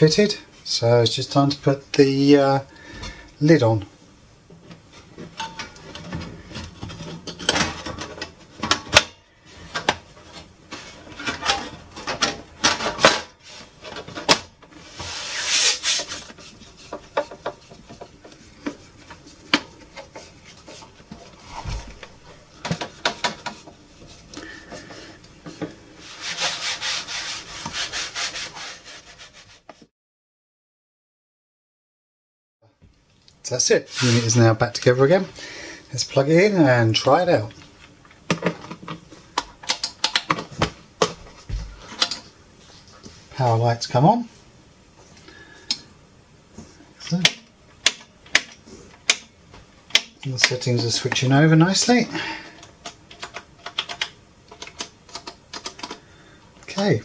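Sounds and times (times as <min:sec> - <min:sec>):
tissue rubbing on metal case: 0:14.9 - 0:16.9, 0:33.9 - 0:34.4.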